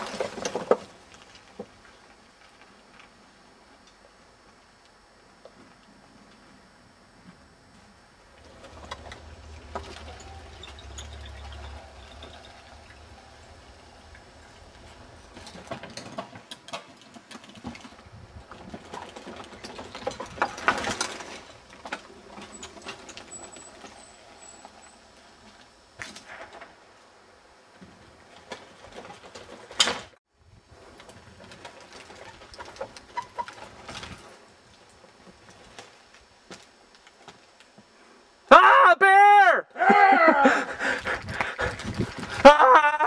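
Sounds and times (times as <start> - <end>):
bike tyres rumbling: 7.2 - 38.0, 40.5 - 43.0
bike clattering on wooden slats: 8.4 - 26.8, 27.8 - 30.2, 31.0 - 37.5.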